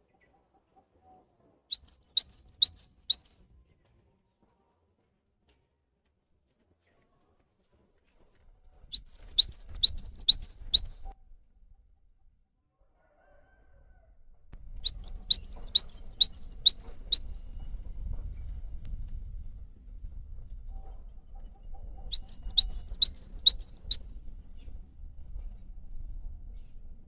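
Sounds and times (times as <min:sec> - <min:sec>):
tit singing high sharp notes: 0:01.8 - 0:03.4, 0:09.0 - 0:11.0, 0:14.9 - 0:17.2, 0:22.2 - 0:24.0
faint low rumble: 0:14.3 - 0:27.0.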